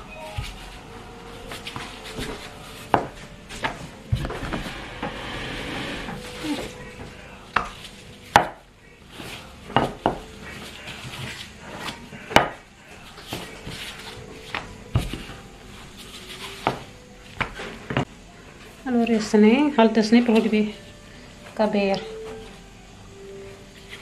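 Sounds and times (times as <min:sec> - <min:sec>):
rolling pin rubbing dough: 0:00.2 - 0:18.0.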